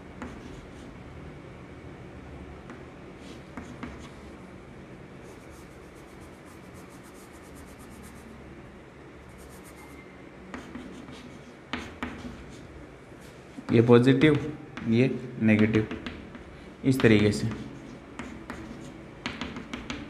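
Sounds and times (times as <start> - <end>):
chalk scratching on chalkboard: 0.2 - 0.9, 5.2 - 8.4, 9.3 - 12.7, 17.0 - 20.0.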